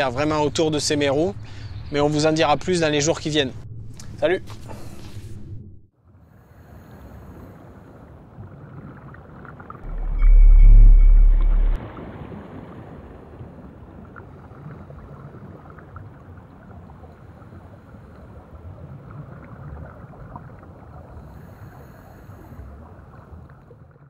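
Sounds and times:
water ambience: 0:06.0 - 0:24.0.

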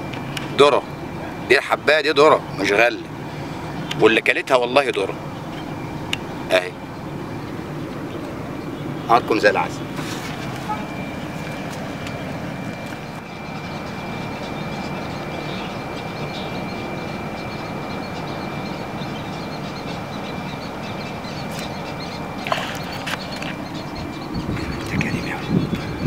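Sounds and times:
low outdoor rumble: 0:00.0 - 0:26.0
faint bird chirps: 0:10.6 - 0:26.0
splash in water: 0:22.4 - 0:23.1.

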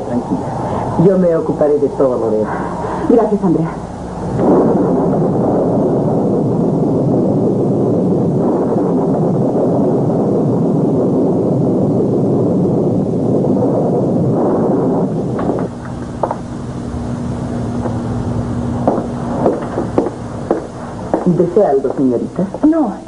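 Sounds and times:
storm wind rushing: 0:00.0 - 0:23.0.

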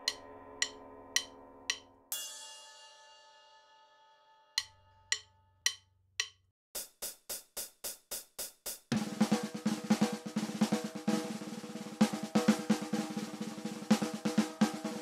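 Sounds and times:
drumstick clicks: 0:00.1 - 0:01.9, 0:04.6 - 0:06.4
snare drum roll: 0:06.8 - 0:15.0.

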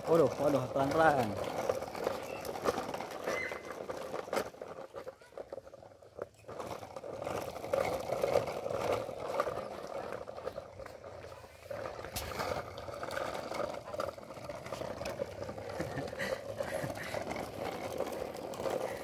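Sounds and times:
plastic wheels rattling on asphalt: 0:00.0 - 0:19.0.

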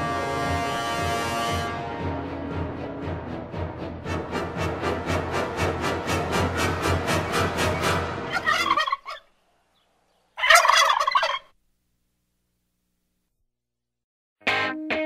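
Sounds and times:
background music: 0:00.0 - 0:09.0, 0:14.4 - 0:15.0.

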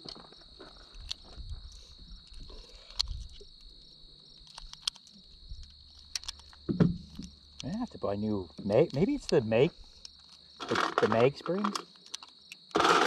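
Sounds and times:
insects trilling: 0:00.0 - 0:13.0
gear clicks and knocks: 0:04.4 - 0:07.8, 0:10.0 - 0:13.0.

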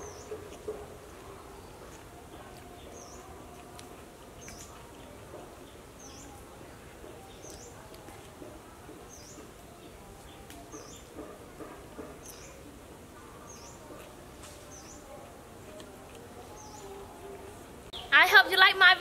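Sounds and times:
bird chirping: 0:00.0 - 0:03.8, 0:04.4 - 0:08.2, 0:09.0 - 0:11.3, 0:12.0 - 0:12.7.

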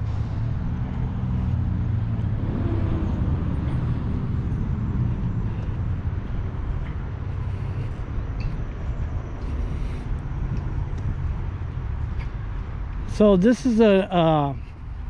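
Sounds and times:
highway traffic rumble: 0:00.0 - 0:15.0
vehicle engine drone: 0:00.0 - 0:15.0.

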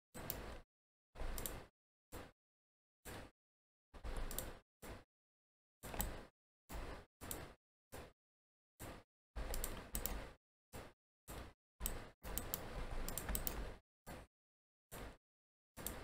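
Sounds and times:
keyboard and mouse clicks: 0:00.2 - 0:00.6, 0:01.2 - 0:02.3, 0:04.0 - 0:05.0, 0:05.8 - 0:08.1, 0:08.8 - 0:14.3, 0:15.8 - 0:16.0.

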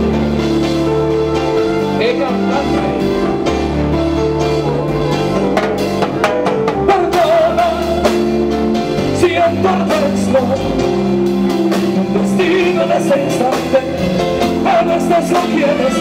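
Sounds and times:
live band music: 0:00.0 - 0:16.0
man singing: 0:06.6 - 0:11.3, 0:12.0 - 0:16.0.

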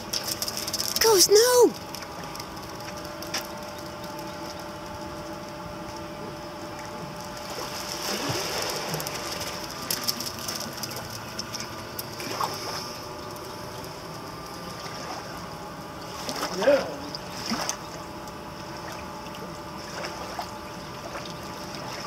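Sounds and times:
machine hum: 0:00.0 - 0:22.0.

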